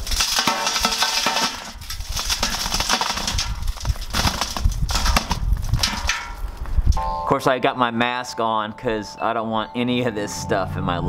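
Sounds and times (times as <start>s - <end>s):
fragments clicking on metal bucket: 0.0s - 6.4s
gritty crunching: 0.0s - 6.8s.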